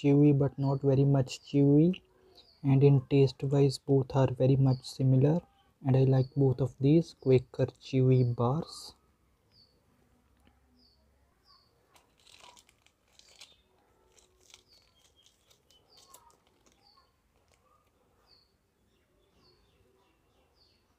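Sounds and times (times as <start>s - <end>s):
bird chirping: 0.0s - 20.9s
plastic wrappers crinkling and tearing: 11.9s - 18.0s.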